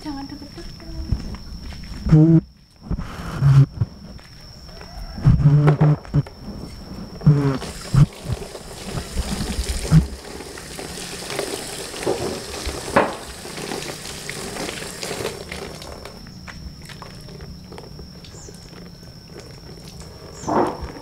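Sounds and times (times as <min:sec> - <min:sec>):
tap water splashing into basin: 0:07.6 - 0:16.1.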